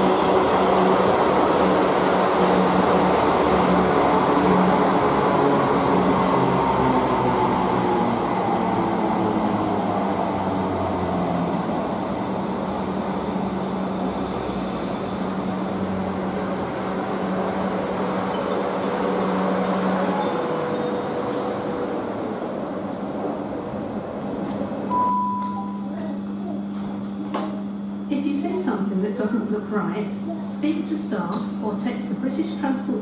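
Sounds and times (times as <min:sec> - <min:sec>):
brake squeal: 0:22.3 - 0:23.5.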